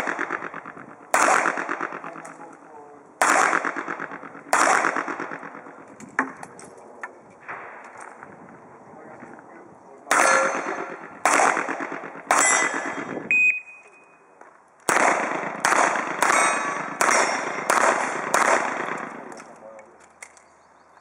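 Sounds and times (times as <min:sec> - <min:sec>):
handgun shots with long echoes: 0:00.0 - 0:02.5, 0:03.2 - 0:05.9, 0:10.1 - 0:13.2, 0:14.9 - 0:19.5.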